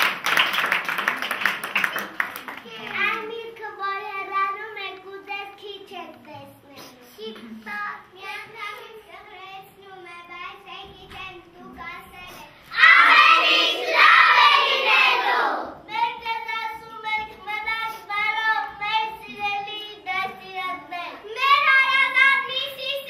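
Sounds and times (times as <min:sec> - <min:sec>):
young children singing: 0:12.7 - 0:15.8.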